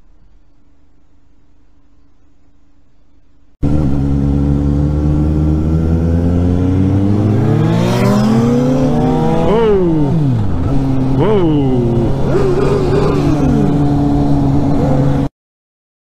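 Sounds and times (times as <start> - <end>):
motorcycle engine accelerating: 3.6 - 15.3.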